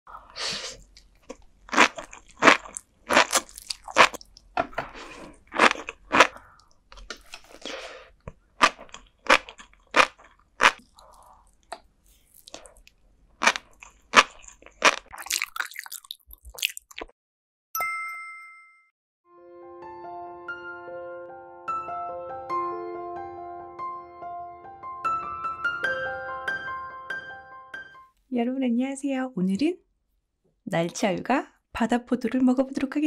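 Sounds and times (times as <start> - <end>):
crunchy chewing: 0.2 - 17.1.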